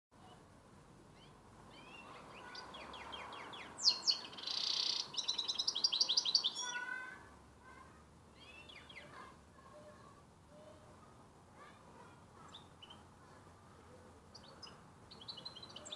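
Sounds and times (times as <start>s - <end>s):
songbird singing: 0.2s - 15.9s.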